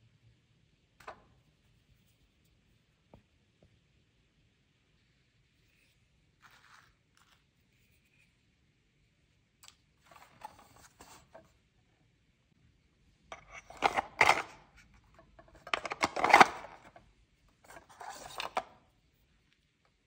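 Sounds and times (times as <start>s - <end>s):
plastic toy fridge rubbing and clicking: 10.0s - 11.5s, 13.3s - 17.0s, 17.6s - 18.8s.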